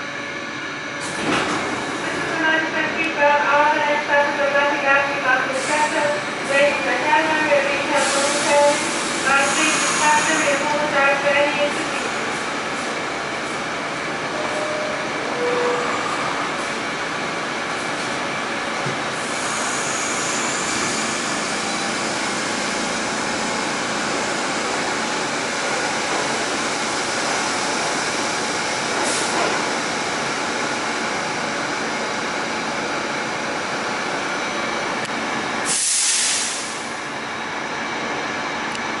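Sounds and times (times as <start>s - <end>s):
subway car running rumble: 0.0s - 39.0s.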